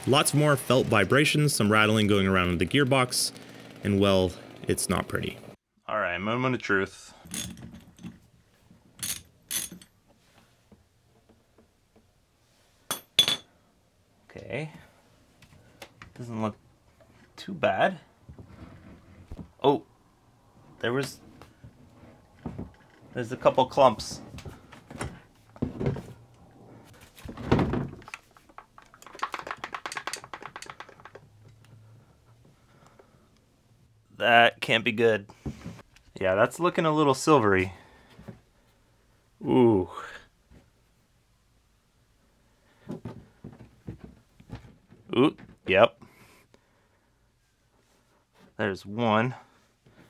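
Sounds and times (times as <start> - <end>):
small metal clicks and rattles: 28.0 - 31.7.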